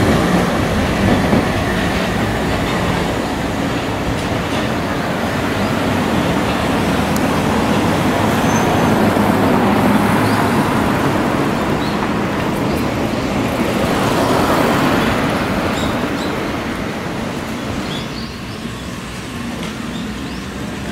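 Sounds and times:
city street traffic: 0.0s - 20.9s.

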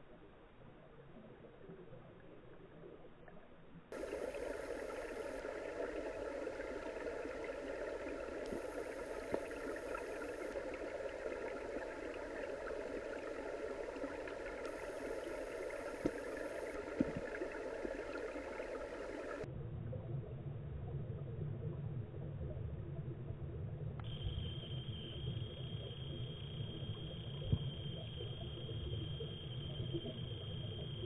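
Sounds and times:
muffled underwater rush: 0.0s - 31.0s
thin high whine: 3.9s - 17.2s, 24.0s - 31.0s
faint clicks: 8.4s - 10.6s, 14.3s - 17.4s.

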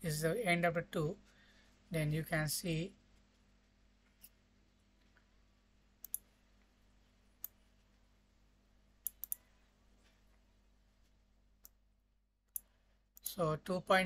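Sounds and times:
faint steady hum: 0.0s - 14.0s
computer mouse buttons clicking: 6.0s - 6.3s, 9.0s - 9.4s.

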